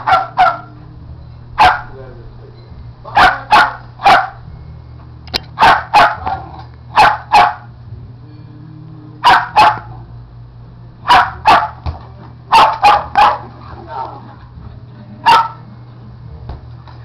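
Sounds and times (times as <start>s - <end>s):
dog barking: 0.0s - 0.7s, 1.6s - 1.9s, 3.1s - 4.4s, 5.6s - 7.7s, 9.2s - 10.0s, 11.0s - 11.8s, 12.5s - 13.6s, 15.2s - 15.6s.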